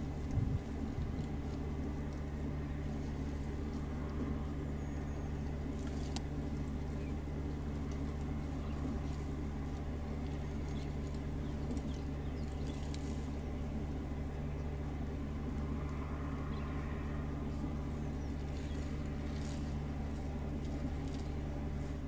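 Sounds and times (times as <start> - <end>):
vehicle engine idling: 0.0 - 22.0.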